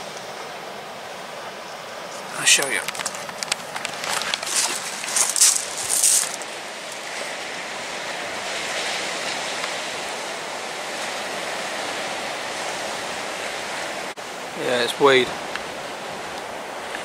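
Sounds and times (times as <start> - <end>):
surf breaking on shingle beach: 2.2 - 17.0
loud rustling: 2.7 - 7.0.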